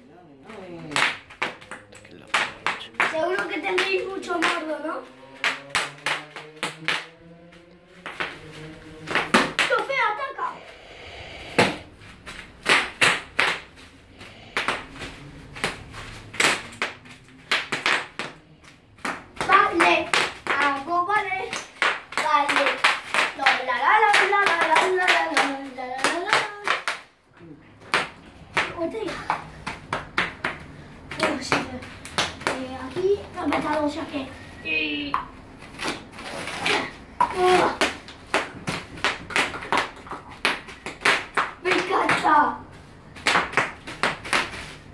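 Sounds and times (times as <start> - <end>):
child's voice: 2.9 - 5.2, 9.6 - 10.6, 19.4 - 21.6, 22.2 - 26.8, 28.7 - 29.4, 31.2 - 34.4, 36.6 - 37.9, 41.6 - 42.7.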